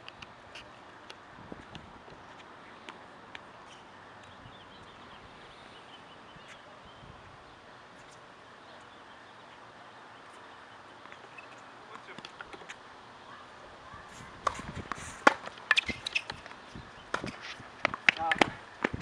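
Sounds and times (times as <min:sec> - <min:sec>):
birds chirping: 0:02.2 - 0:14.3, 0:15.6 - 0:18.5
tennis balls being hit: 0:14.4 - 0:19.0.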